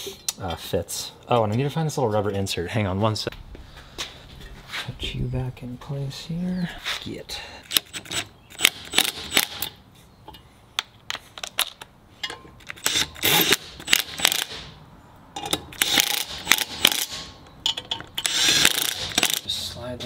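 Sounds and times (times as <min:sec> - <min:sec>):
impact driver running: 0:18.3 - 0:19.4.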